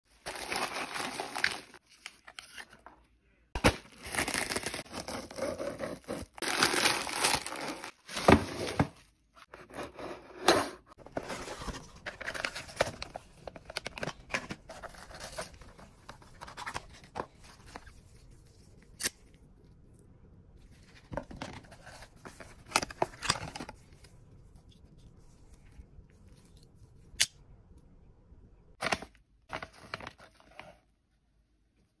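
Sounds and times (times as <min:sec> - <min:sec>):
packaging rustling and crinkling: 0:00.1 - 0:02.8, 0:03.6 - 0:09.0.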